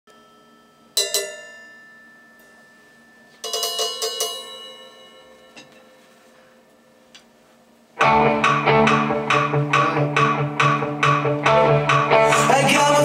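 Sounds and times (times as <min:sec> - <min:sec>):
cymbals struck with sticks: 0:00.9 - 0:05.9.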